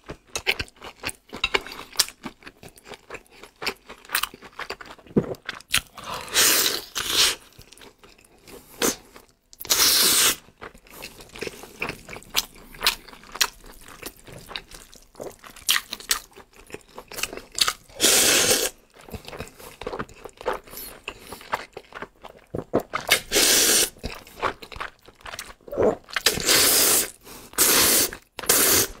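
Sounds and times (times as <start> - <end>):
wet chewing and smacking: 0.0 - 6.0, 10.4 - 17.9, 18.8 - 23.3, 23.9 - 26.4
slurping noodles: 9.7 - 14.3, 17.9 - 18.8, 23.0 - 24.0, 25.7 - 29.0.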